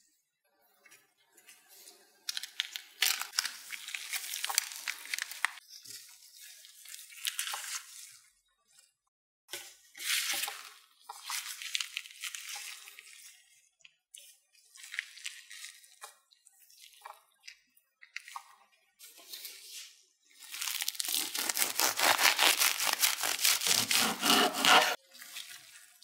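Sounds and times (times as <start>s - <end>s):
soft wet squishing: 2.3s - 8.4s, 10.0s - 23.9s, 24.9s - 26.0s
crinkling and rustling: 20.4s - 25.0s.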